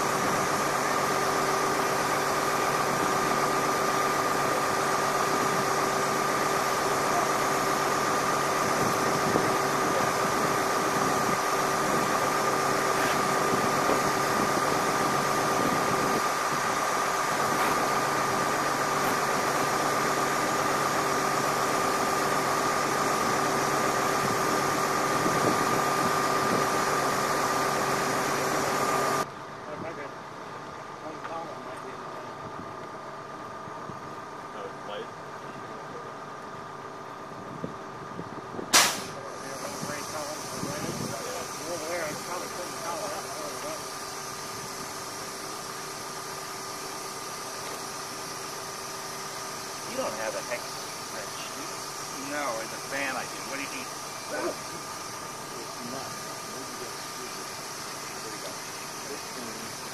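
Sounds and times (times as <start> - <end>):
high whine: 0.0 - 30.1
bus engine idling: 0.0 - 59.9.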